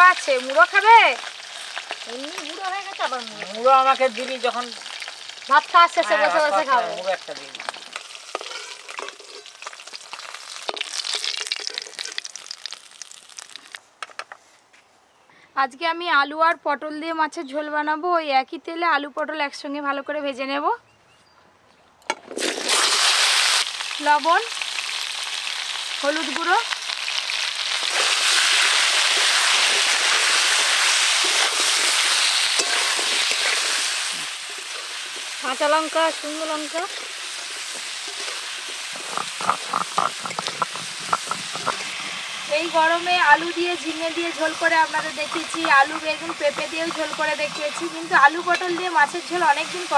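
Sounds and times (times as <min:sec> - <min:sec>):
fish frying in hot oil: 0:00.0 - 0:13.8, 0:22.4 - 0:49.9
metal spatula knocking on pan: 0:45.2 - 0:49.0.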